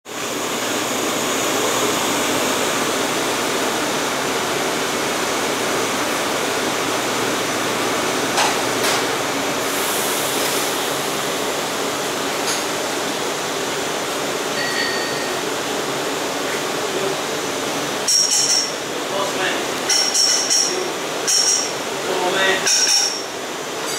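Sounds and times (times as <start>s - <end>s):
air conditioning hiss: 0.1s - 23.9s.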